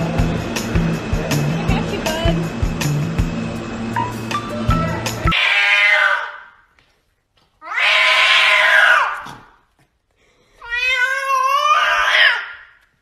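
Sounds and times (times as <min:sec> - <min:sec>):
cat yowling meows: 0:05.3 - 0:06.5, 0:07.6 - 0:09.3, 0:10.6 - 0:12.7.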